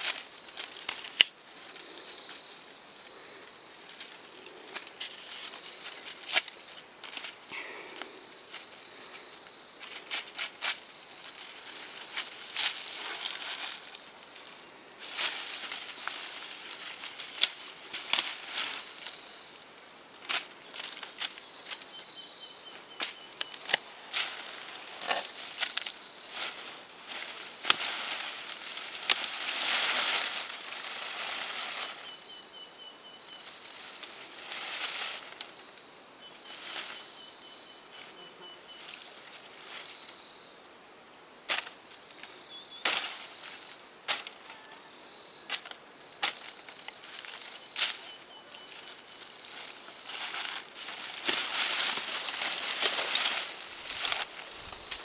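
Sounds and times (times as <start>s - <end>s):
rustling: 0.0s - 19.5s, 23.0s - 32.4s, 33.4s - 37.3s, 45.5s - 55.0s
high-pitched insect chorus: 0.0s - 55.0s
pulsing insect trill: 0.0s - 55.0s.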